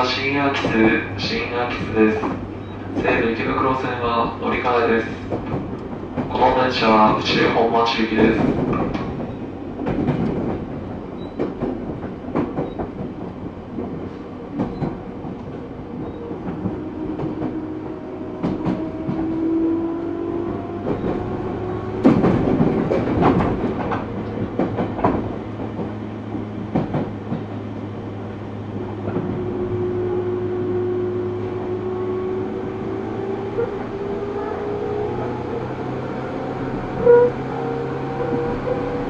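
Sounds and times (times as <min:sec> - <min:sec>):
wheels clacking over rail joints: 0:00.0 - 0:30.5.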